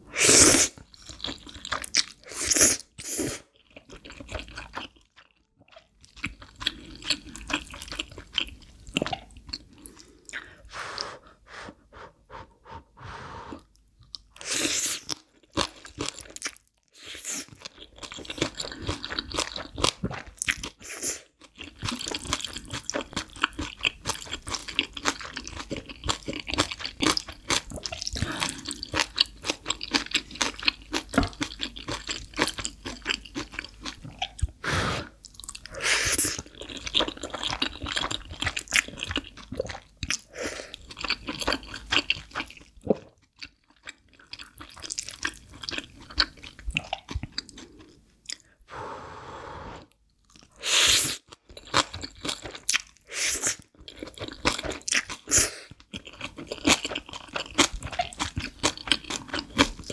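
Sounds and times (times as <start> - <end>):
crunching of kimchi: 0.1 - 10.5, 13.6 - 34.6, 35.2 - 48.5, 50.1 - 59.9
wet chewing of noodles: 0.1 - 48.6, 49.8 - 59.9.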